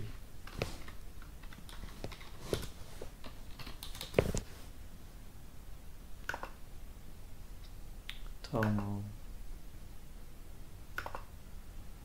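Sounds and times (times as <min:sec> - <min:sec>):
typing on computer keyboard: 0:03.2 - 0:04.2.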